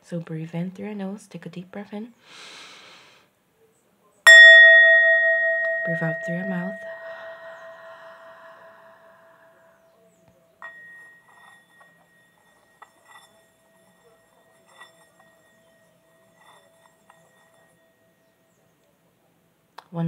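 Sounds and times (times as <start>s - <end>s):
mallet touching bowl rim: 4.3s - 8.3s
mallet striking singing bowl: 4.3s - 8.8s, 10.6s - 11.9s
singing bowl ringing: 4.3s - 9.8s, 10.6s - 18.6s.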